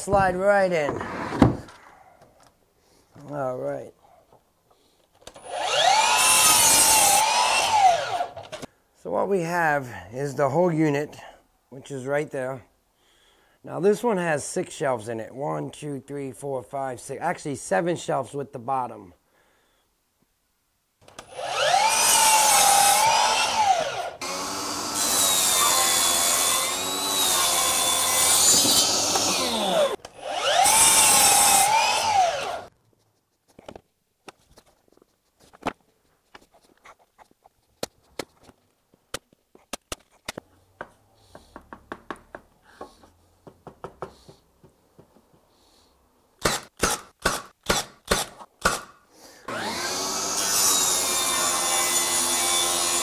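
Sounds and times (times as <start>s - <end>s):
miter saw cutting wood: 5.4s - 8.6s, 21.2s - 32.7s, 49.5s - 53.0s.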